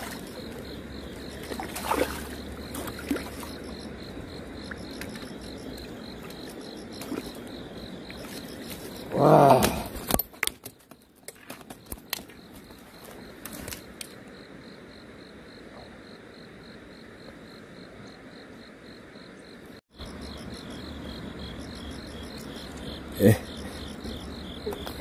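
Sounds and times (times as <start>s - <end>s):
insects chirping: 0.0s - 25.0s.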